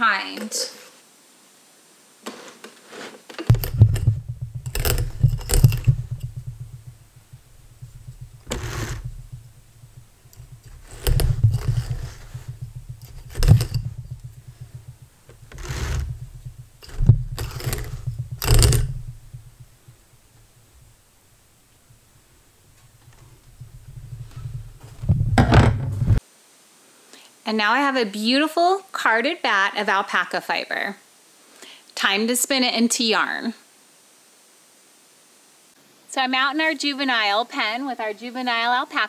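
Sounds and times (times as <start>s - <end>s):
fiber tearing off carder: 3.4s - 20.0s
carder rattling: 3.4s - 26.2s.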